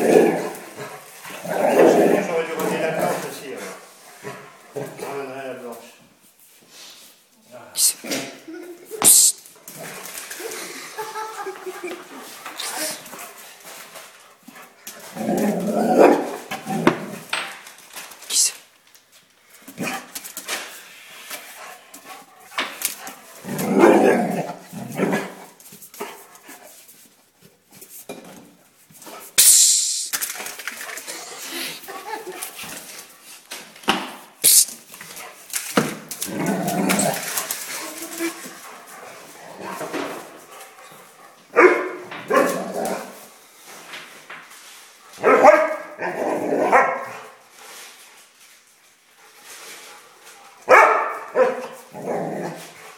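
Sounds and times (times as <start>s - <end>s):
dog barking: 41.5s - 42.6s, 45.2s - 45.9s, 46.6s - 47.2s, 50.7s - 51.8s.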